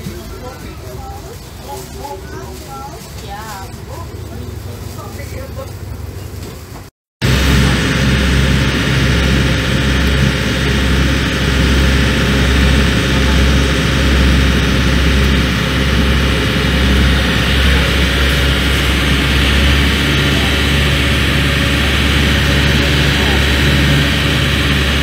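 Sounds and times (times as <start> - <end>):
ferry engine droning: 0.0 - 25.0
water rushing: 7.2 - 25.0.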